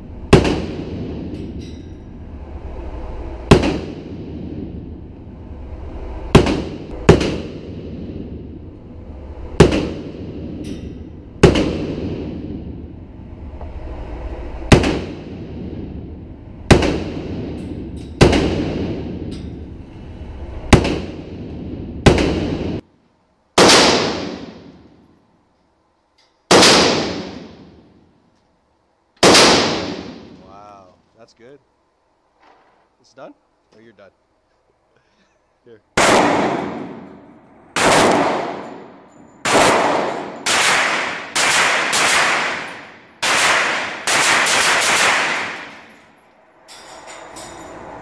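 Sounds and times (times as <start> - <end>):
rifle shots echoing: 0.3 - 1.4, 3.5 - 4.6, 6.3 - 8.3, 9.6 - 10.6, 11.4 - 12.6, 14.7 - 15.7, 16.7 - 17.6, 18.2 - 19.2, 20.7 - 22.8, 23.6 - 24.9, 26.5 - 27.9, 29.2 - 30.4, 36.0 - 46.1.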